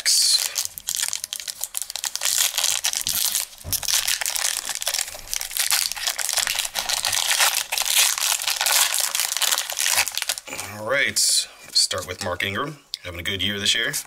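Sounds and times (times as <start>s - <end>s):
foil wrapper crinkling and tearing: 0.0s - 10.6s.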